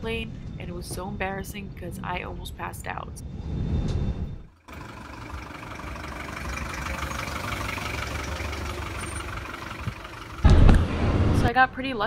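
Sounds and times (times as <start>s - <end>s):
car engine idling: 4.5s - 11.4s.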